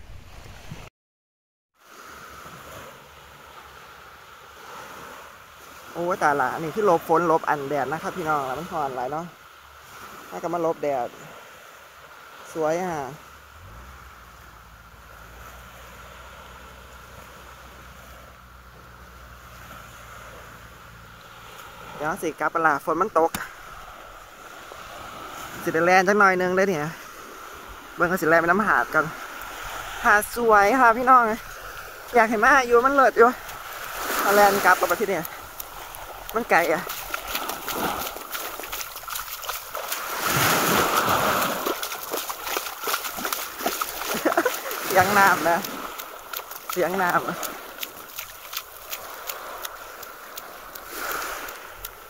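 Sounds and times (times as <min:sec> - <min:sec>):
wind: 0:00.0 - 0:00.9, 0:01.8 - 0:52.0
small waves washing onto beach: 0:01.8 - 0:52.0
surf: 0:01.8 - 0:52.0
boat engine running: 0:30.5 - 0:50.9
small ticks: 0:35.2 - 0:40.0, 0:45.6 - 0:46.8, 0:47.4 - 0:52.0.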